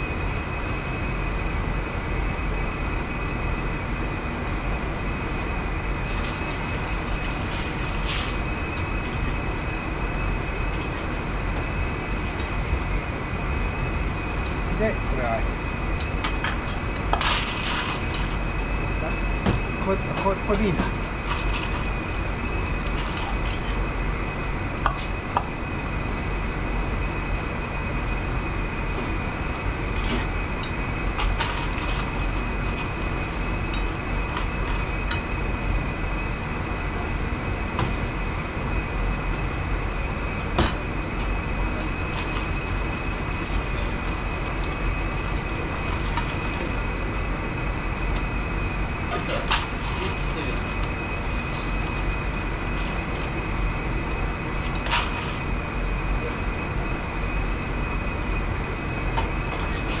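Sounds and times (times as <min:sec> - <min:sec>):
high whine: 0:00.0 - 1:00.0
kitchen machinery drone: 0:00.0 - 1:00.0.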